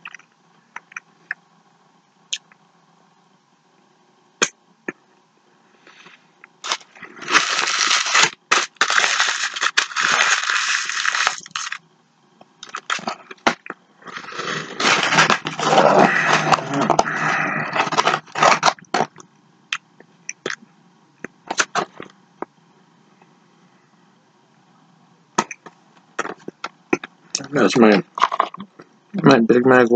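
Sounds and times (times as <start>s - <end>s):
paper wrapper crinkling: 6.6s - 11.8s, 12.6s - 19.2s.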